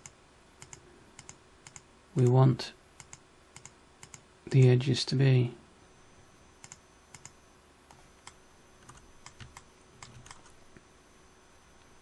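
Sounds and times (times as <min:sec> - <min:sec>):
mouse and keyboard clicks: 0:00.6 - 0:01.8.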